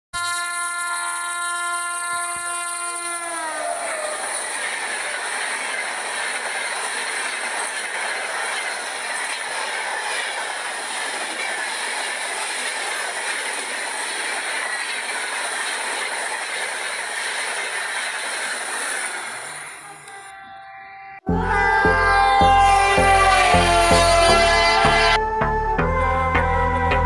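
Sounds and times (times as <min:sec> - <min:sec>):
wheels rattling on plastic track: 0:00.2 - 0:20.2
toy train motors whirring: 0:00.2 - 0:20.8, 0:22.0 - 0:25.2
faint whines drifting in pitch: 0:00.2 - 0:27.0.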